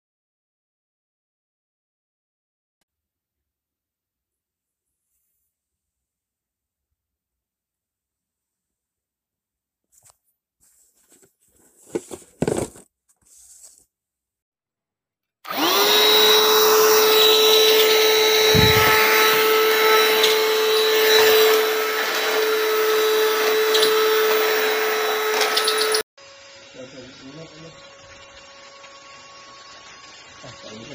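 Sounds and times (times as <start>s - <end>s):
vacuum cleaner motor whining: 15.4s - 30.9s.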